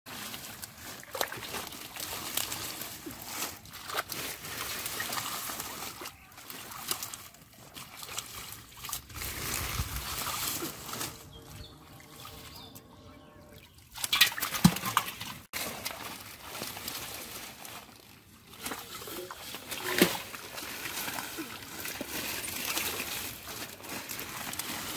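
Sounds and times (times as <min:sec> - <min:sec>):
water sloshing and trickling: 0:00.1 - 0:24.9
sharp water splashes: 0:00.6 - 0:12.6, 0:13.7 - 0:17.0.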